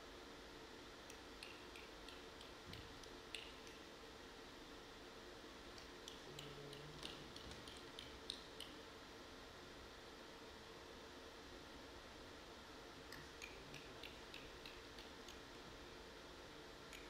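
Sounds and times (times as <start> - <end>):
small ticks and clicks: 1.0 - 3.9, 5.7 - 8.9, 13.1 - 15.7.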